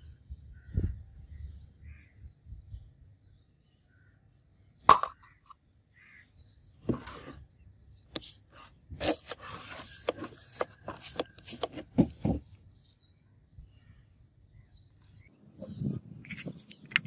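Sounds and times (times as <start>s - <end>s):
spray bottle squirting: 8.2s - 8.5s.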